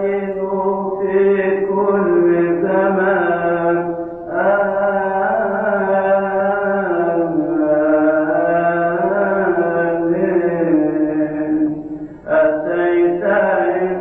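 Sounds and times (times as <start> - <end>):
liturgical chanting: 0.0 - 14.0.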